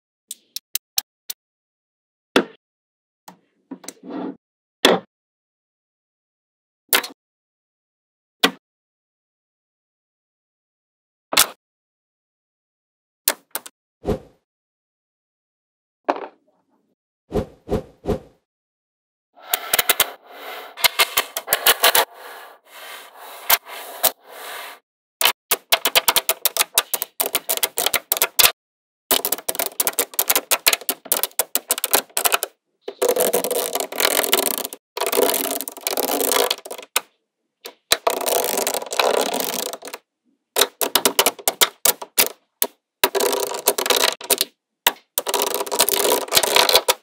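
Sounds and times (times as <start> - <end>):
magnetic balls clicking together: 25.2 - 28.5, 29.1 - 37.0, 37.7 - 40.0, 40.6 - 47.0.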